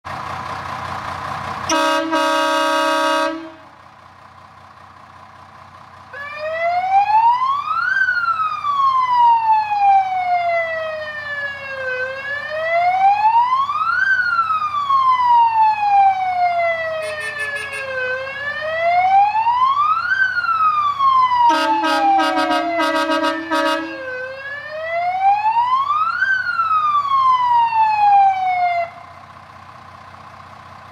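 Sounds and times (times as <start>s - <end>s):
fire engine air horns: 1.6s - 3.8s, 16.9s - 18.4s, 21.4s - 24.4s
electronic siren wailing: 6.2s - 29.0s.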